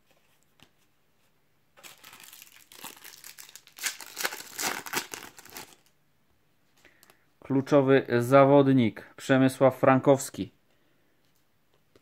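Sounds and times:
wrapper crinkling and crackling: 0:01.8 - 0:05.9.

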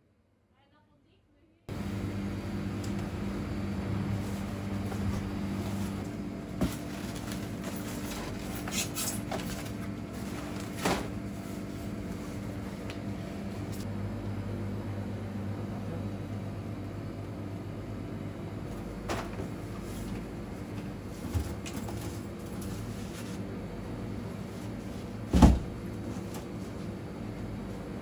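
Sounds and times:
freezers humming: 0:01.7 - 0:28.0
freezer door thump: 0:25.3 - 0:25.8.

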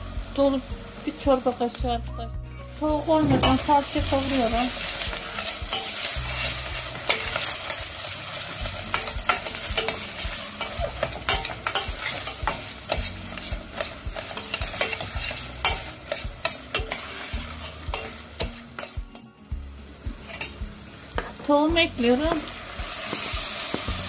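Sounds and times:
vegetables sizzling in oil: 0:00.0 - 0:24.0
spoon scraping and knocking pot: 0:08.9 - 0:17.1.

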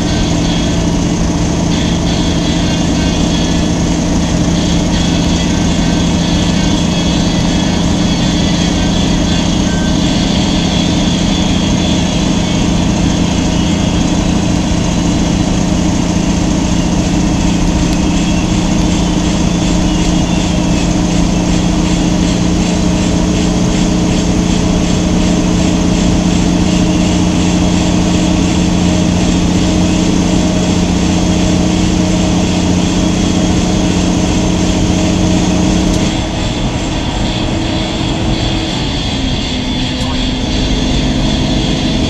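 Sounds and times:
diesel truck engine running: 0:00.0 - 0:42.0
road noise: 0:00.0 - 0:42.0
strong low hum: 0:00.0 - 0:42.0.

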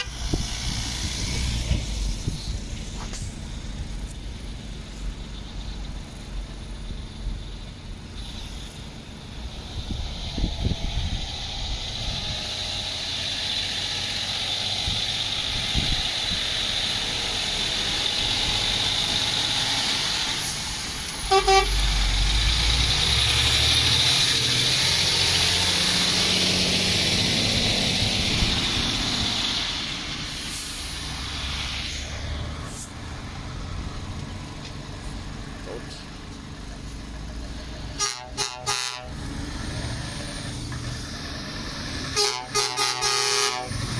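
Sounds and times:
lorry engine running: 0:00.0 - 0:43.9
truck horn toot: 0:21.2 - 0:21.9, 0:38.0 - 0:39.2, 0:42.1 - 0:43.9.

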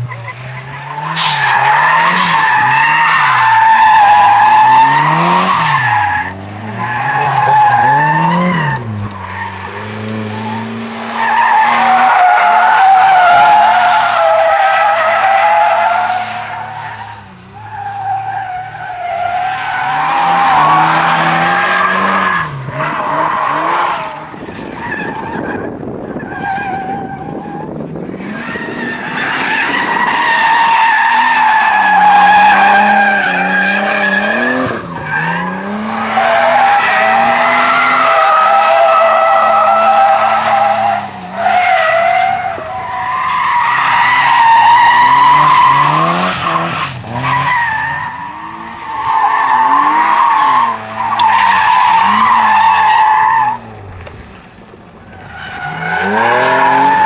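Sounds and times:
car engines revving: 0:00.0 - 0:57.0
tyres squealing: 0:00.1 - 0:24.2.

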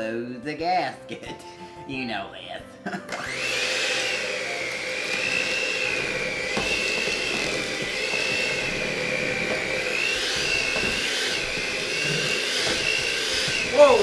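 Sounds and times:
electric hand mixer whining: 0:03.0 - 0:14.0.

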